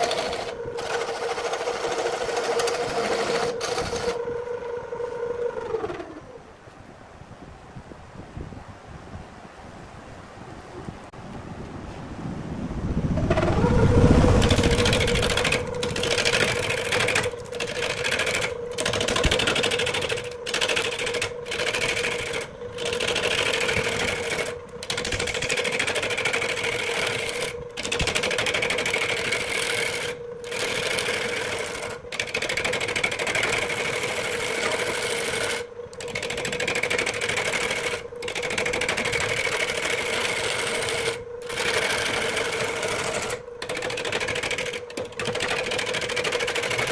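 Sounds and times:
gouge scraping wood: 0:00.0 - 0:04.2, 0:14.4 - 0:46.9
wood lathe motor humming: 0:00.0 - 0:06.4, 0:13.2 - 0:46.9.

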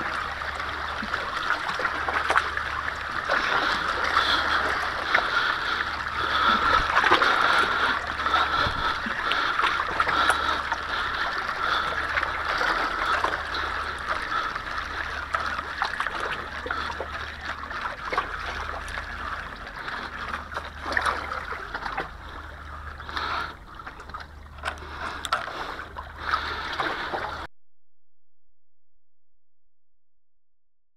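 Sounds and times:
small waves lapping on rocks: 0:00.0 - 0:27.3.

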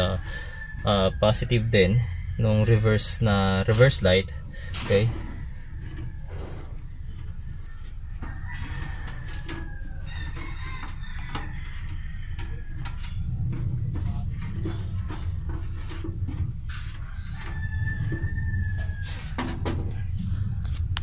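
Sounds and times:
rooster crowing: 0:00.0 - 0:03.0, 0:05.1 - 0:20.6
steady low rumble: 0:00.0 - 0:21.0
wire clicking and rustling: 0:04.7 - 0:21.0.

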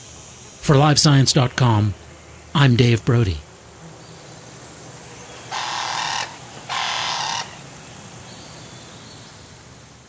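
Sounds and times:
faint forest hiss: 0:00.0 - 0:10.0
harsh animal calls: 0:05.5 - 0:07.6.

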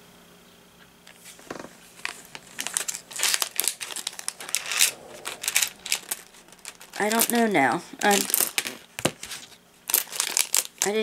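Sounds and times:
plastic packet crinkling: 0:02.0 - 0:04.7, 0:05.6 - 0:11.0.

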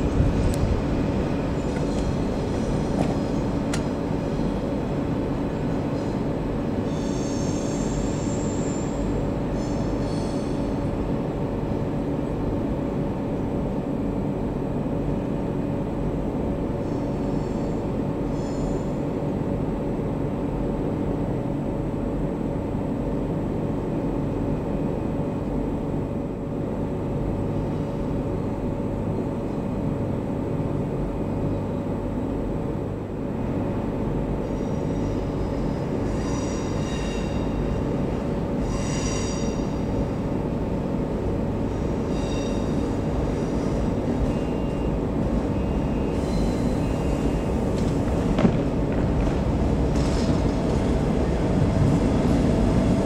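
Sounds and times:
freight train rumbling: 0:00.0 - 0:53.0
train wheels squealing: 0:06.8 - 0:10.9, 0:16.8 - 0:19.0, 0:34.4 - 0:37.9, 0:38.6 - 0:40.0, 0:41.8 - 0:47.7.

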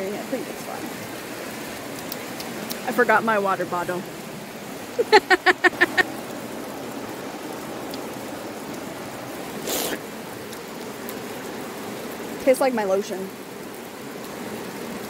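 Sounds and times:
creek water running: 0:00.0 - 0:15.0
person laughing: 0:05.0 - 0:06.1
person slurping water: 0:09.6 - 0:10.0.

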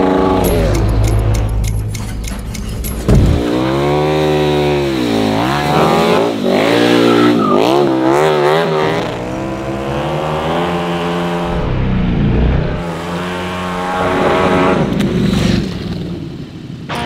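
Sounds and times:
motorcycle engine revving: 0:00.0 - 0:16.1
tyre squeal: 0:06.9 - 0:07.8.

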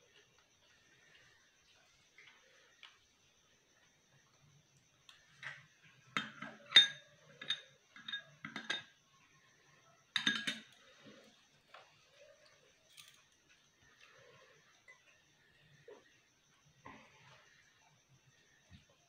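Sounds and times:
spoon clinking on crockery: 0:05.4 - 0:09.0, 0:10.1 - 0:10.8.

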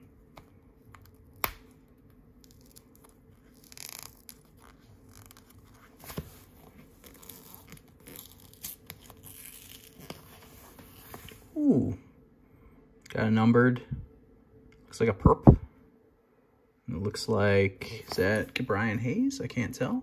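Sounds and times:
trading card tearing: 0:02.4 - 0:06.2, 0:07.0 - 0:10.3.

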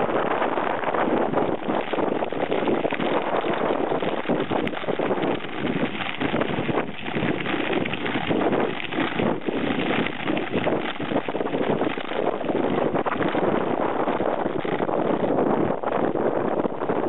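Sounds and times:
bike rattling: 0:00.0 - 0:17.0
bike tyre noise: 0:00.0 - 0:17.0
wind rushing over microphone: 0:00.0 - 0:17.0.

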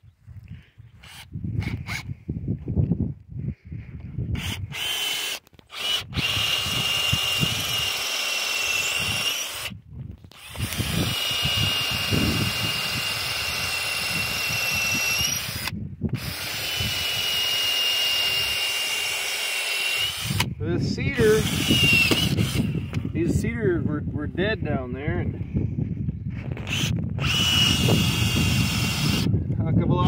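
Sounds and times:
cordless drill boring into log: 0:01.0 - 0:02.1, 0:04.3 - 0:23.4, 0:26.4 - 0:29.4.

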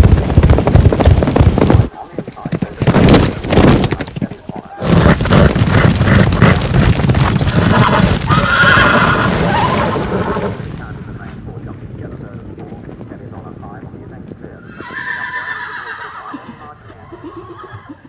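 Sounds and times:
horse hooves galloping: 0:00.0 - 0:18.0
horse whinnying: 0:03.1 - 0:10.8, 0:14.6 - 0:18.0.

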